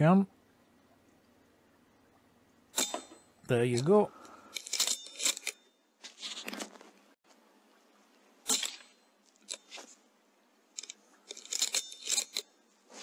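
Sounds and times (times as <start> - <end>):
clicks and scrapes: 4.5 - 7.0, 8.5 - 10.0, 10.8 - 13.0
fabric rustling: 6.0 - 7.2, 12.8 - 13.0.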